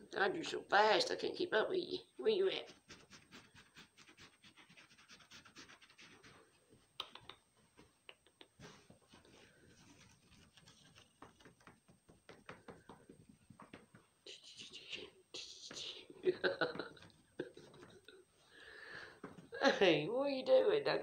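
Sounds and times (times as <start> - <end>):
scratching and rustling on fabric: 2.6 - 6.9, 8.6 - 14.8.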